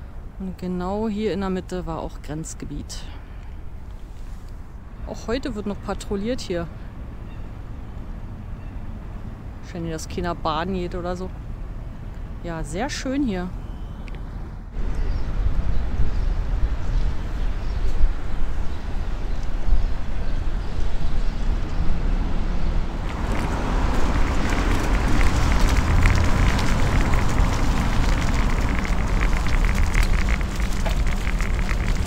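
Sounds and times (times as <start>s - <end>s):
wind noise on microphone: 14.7s - 32.0s
bike tyres and frame rattling: 23.0s - 32.0s
bright hiss with fine crackling: 23.1s - 32.0s.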